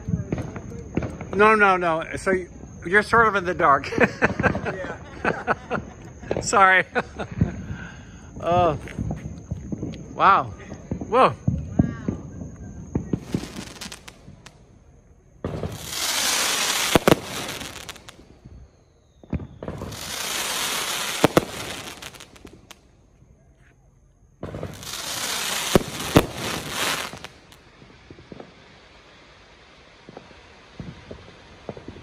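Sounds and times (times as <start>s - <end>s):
small firework pops: 0.0s - 1.4s, 8.8s - 14.6s, 15.4s - 18.5s, 19.2s - 23.0s, 23.6s - 28.7s, 30.0s - 32.0s
fireworks hissing and crackling: 0.0s - 32.0s
firework bang: 3.6s - 14.6s, 15.4s - 18.6s, 19.2s - 22.8s, 24.4s - 28.6s.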